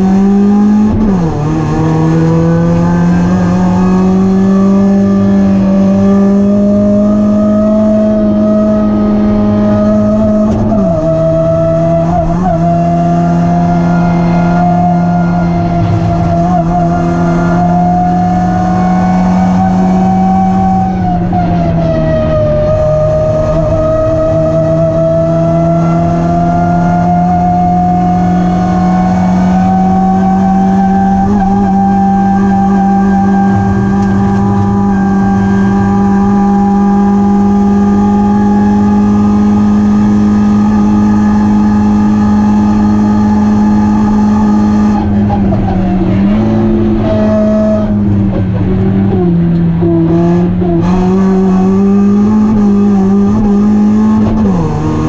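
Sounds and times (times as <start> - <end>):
car engine at high revs: 0.0 - 55.0.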